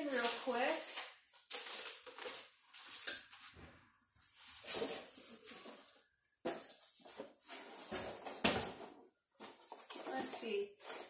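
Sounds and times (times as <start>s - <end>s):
plastic wrapping crinkling: 0.0s - 3.6s.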